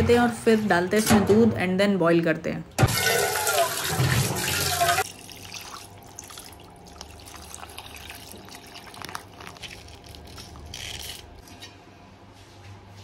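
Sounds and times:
milk trickling into a pan: 4.5 - 10.6.

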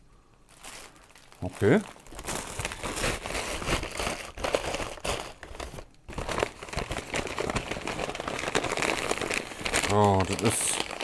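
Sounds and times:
paper bag crinkling and rustling: 0.5 - 11.0.

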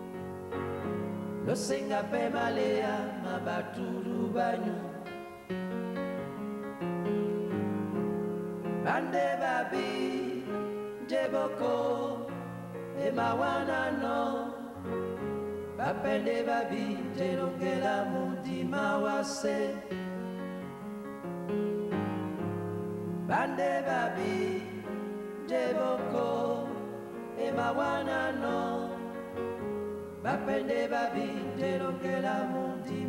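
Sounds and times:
group of voices singing: 1.4 - 5.5, 8.8 - 20.2, 23.2 - 33.0.

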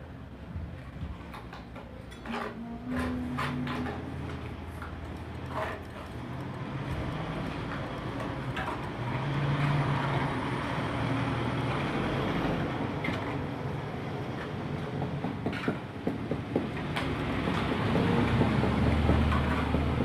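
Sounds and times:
vehicle engine rumbling past: 3.0 - 14.3.

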